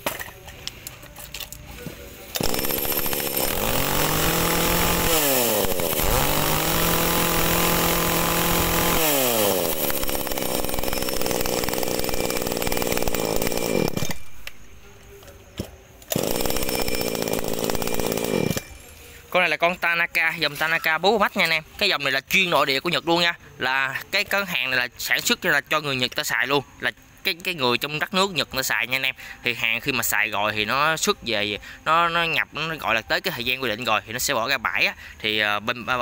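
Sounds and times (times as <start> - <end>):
chainsaw engine revving and idling: 2.3 - 14.3, 16.1 - 19.3.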